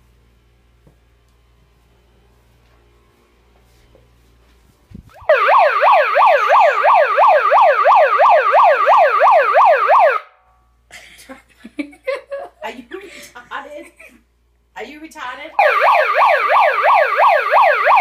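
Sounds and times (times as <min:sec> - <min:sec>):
air horn siren-like wail: 0:05.2 - 0:10.5, 0:15.6 - 0:18.0.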